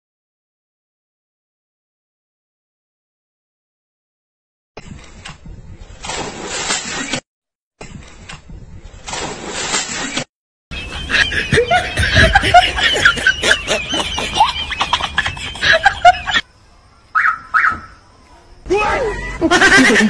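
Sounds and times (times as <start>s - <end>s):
excited calls: 10.7s - 19.8s
men laughing hard: 10.8s - 16.4s, 18.9s - 20.0s.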